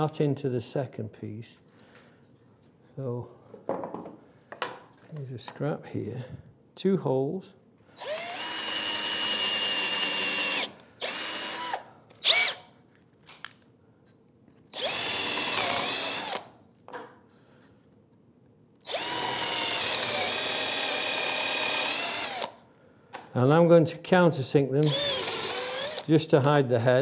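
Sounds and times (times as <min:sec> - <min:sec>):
cordless drill boring into wood: 0:08.0 - 0:12.7, 0:14.7 - 0:16.5, 0:18.8 - 0:22.6, 0:24.8 - 0:26.1.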